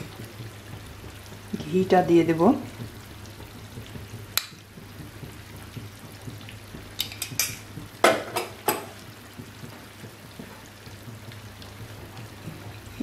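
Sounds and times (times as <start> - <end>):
chicken frying in oil: 0.0 - 13.0
oil clicks and pops: 2.8 - 10.5.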